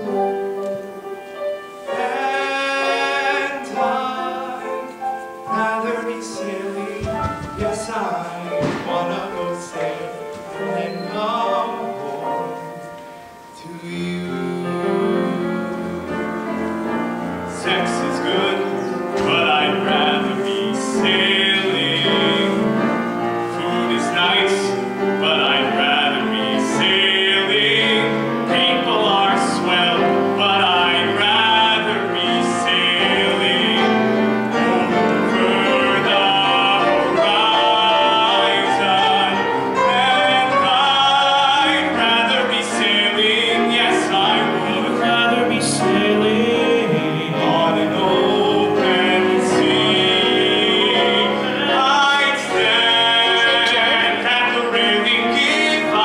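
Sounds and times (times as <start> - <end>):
piano accompaniment: 0.0 - 56.0
man singing into microphone: 1.9 - 12.8, 13.5 - 16.5, 17.5 - 56.0.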